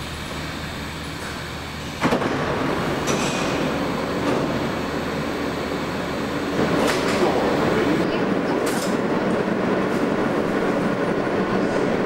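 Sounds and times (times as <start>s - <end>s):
subway train running noise: 0.0s - 12.0s
train doors sliding open: 1.2s - 10.8s.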